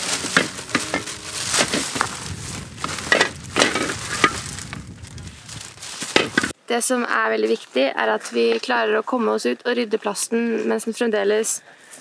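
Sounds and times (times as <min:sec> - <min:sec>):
plastic litter clattering: 0:00.0 - 0:04.7, 0:05.6 - 0:06.6
plastic bag rustling: 0:00.0 - 0:06.6.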